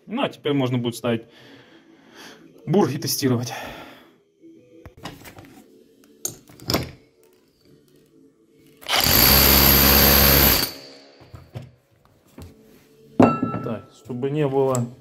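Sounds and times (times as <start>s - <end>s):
rotary hammer whining and hammering: 8.8s - 11.6s
tool handling knocks: 13.2s - 13.8s.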